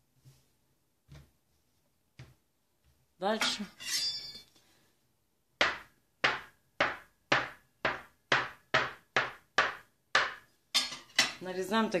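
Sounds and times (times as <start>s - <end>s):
knife chopping dough on countertop: 5.6s - 10.5s.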